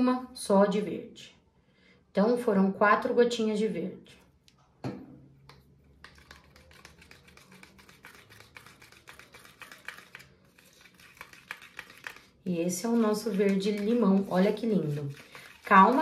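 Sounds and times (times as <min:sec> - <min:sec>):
bottle knocking on table: 0:04.8 - 0:05.2
palette knife scraping plastic cup: 0:06.0 - 0:16.0.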